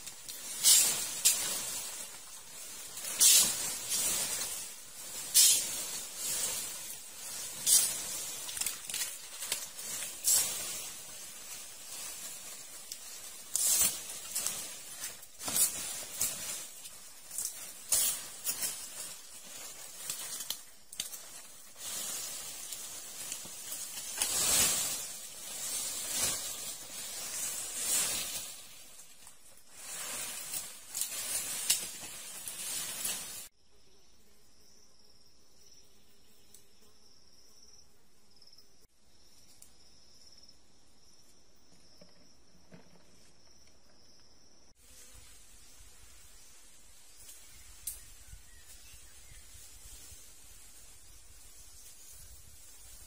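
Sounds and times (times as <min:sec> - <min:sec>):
rustling and crackling: 0:00.0 - 0:33.5
insects chirring: 0:00.0 - 0:53.0.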